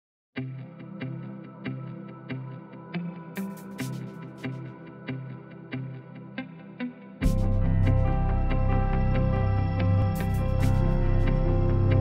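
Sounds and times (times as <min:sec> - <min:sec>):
music with strong bass: 0:07.2 - 0:12.0.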